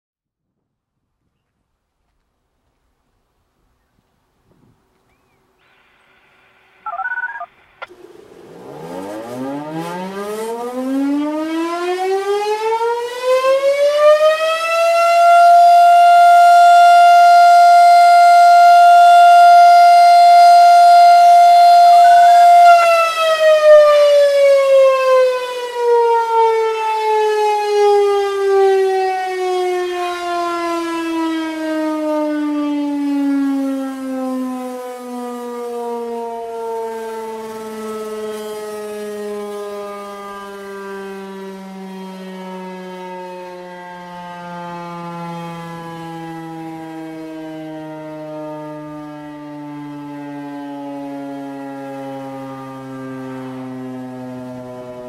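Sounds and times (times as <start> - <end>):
brief short sound: 6.9 - 7.5
warning siren winding up and down: 6.9 - 55.0.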